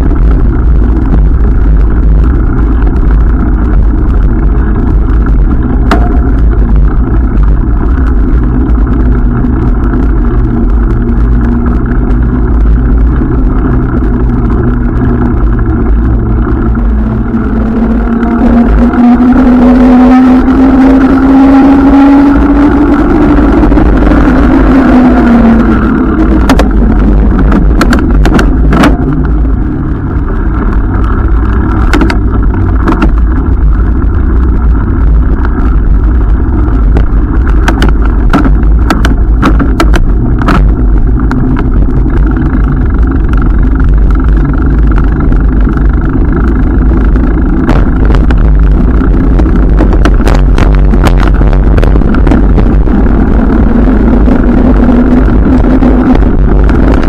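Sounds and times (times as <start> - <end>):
bicycle rattling over bumps: 0.0 - 19.4, 20.2 - 57.0
passing vehicle engine hum: 0.0 - 57.0
wind on microphone: 0.0 - 57.0.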